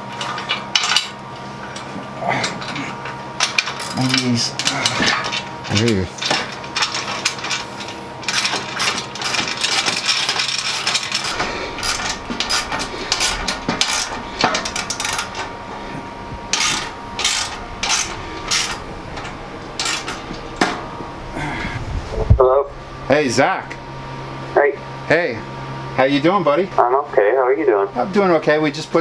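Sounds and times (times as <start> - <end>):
metal tools clinking on steel frame: 3.4 - 20.9.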